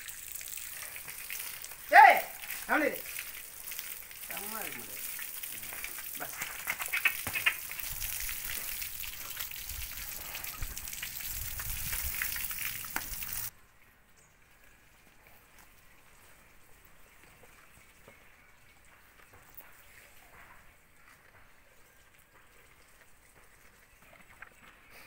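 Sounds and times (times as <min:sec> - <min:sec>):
hose water spraying: 0:00.0 - 0:13.5.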